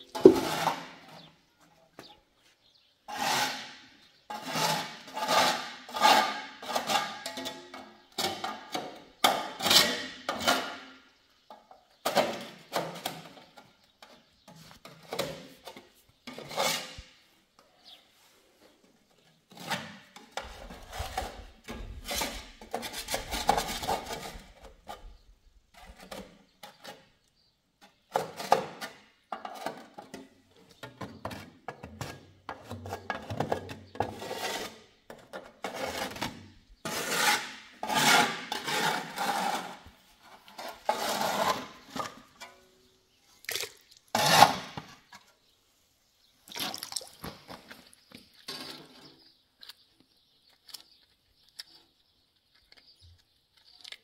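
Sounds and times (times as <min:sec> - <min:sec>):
scraper rasping on concrete: 0:03.1 - 0:07.2, 0:16.3 - 0:17.1, 0:34.0 - 0:35.0, 0:35.6 - 0:42.2, 0:44.1 - 0:44.8.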